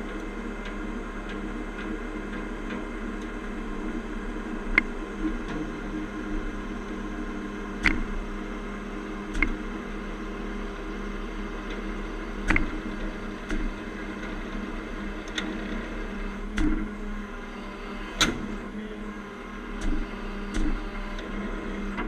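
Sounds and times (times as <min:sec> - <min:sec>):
diesel engine under load: 0:00.0 - 0:22.0
sharp metallic clicks and knocks: 0:07.8 - 0:08.2, 0:09.3 - 0:09.6, 0:12.4 - 0:13.8, 0:16.5 - 0:16.9.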